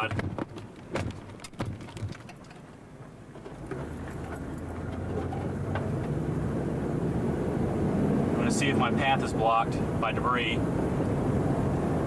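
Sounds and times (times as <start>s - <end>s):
road noise: 0.0s - 12.0s
car engine from inside cabin: 3.0s - 12.0s.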